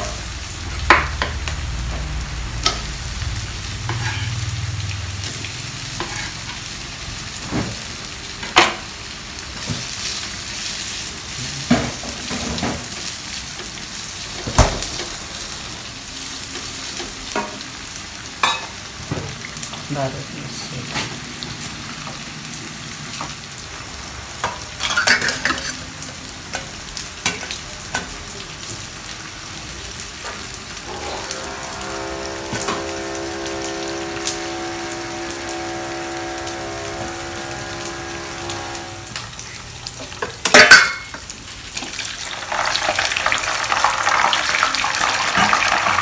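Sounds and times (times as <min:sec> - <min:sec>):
food deep-frying in oil: 0:00.0 - 0:46.0
spatula scraping a pan: 0:03.8 - 0:04.4, 0:06.0 - 0:06.5
steady pitched hum: 0:30.8 - 0:39.2.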